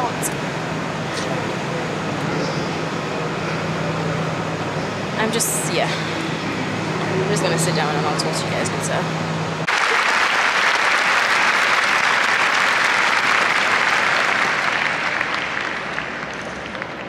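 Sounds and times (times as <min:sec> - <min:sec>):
large crowd applauding: 0:09.7 - 0:17.0.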